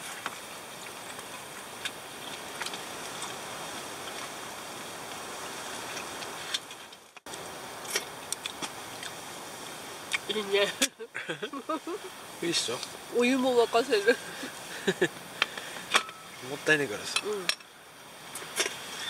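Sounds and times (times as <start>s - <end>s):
strong wind rushing against tent: 0.0s - 10.8s.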